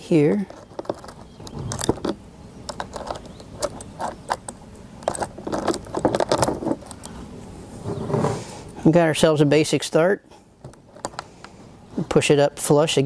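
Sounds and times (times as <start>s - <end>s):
saw chain clinking and rattling: 0.4s - 7.0s.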